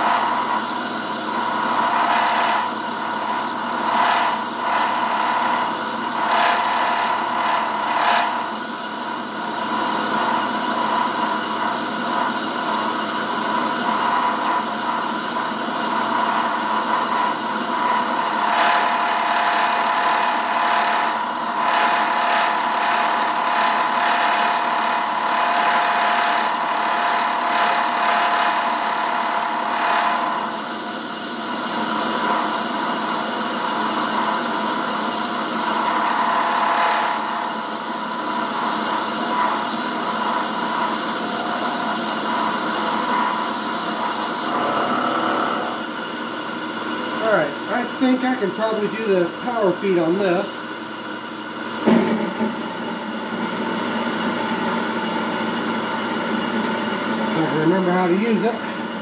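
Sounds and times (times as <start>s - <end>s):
milling machine whine: 0.0s - 59.0s
end mill scraping steel: 44.0s - 46.3s.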